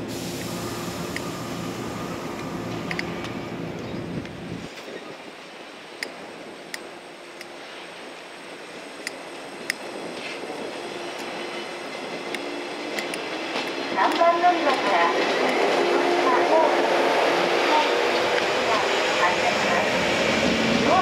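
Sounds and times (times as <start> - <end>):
low train noise: 0.0 - 21.0
train wheels clicking over rail joints: 2.3 - 4.4, 9.0 - 16.0.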